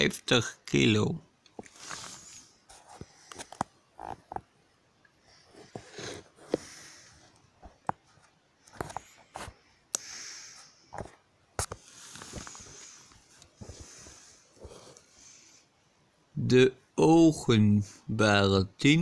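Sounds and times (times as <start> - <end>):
breathing close to microphone: 5.2 - 7.3, 8.8 - 11.2, 11.9 - 15.7.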